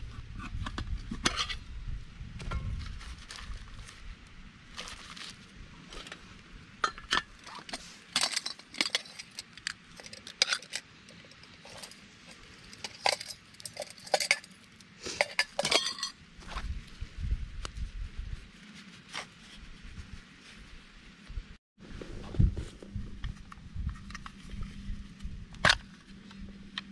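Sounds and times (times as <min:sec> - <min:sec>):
metal cookware clinking: 0:12.8 - 0:14.5, 0:15.2 - 0:16.1.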